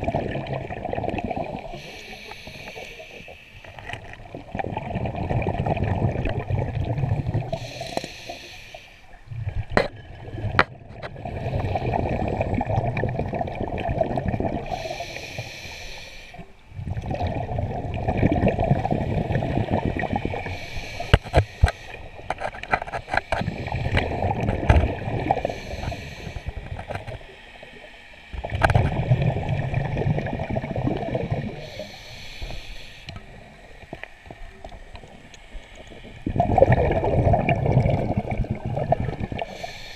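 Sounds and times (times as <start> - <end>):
bubbling exhalations underwater: 0.0 - 2.0, 4.1 - 7.6, 9.3 - 14.9, 16.8 - 21.4, 22.3 - 27.1, 28.4 - 31.7, 36.0 - 39.6
hissing regulator inhalations: 1.7 - 4.0, 7.4 - 9.2, 14.6 - 16.5, 18.9 - 24.5, 25.2 - 27.6, 31.4 - 34.1, 39.3 - 39.9.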